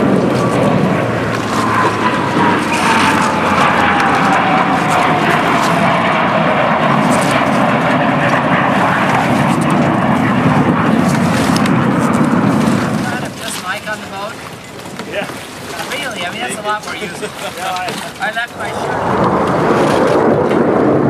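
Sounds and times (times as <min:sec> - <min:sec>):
jets roaring past: 0:00.0 - 0:13.4, 0:18.2 - 0:21.0.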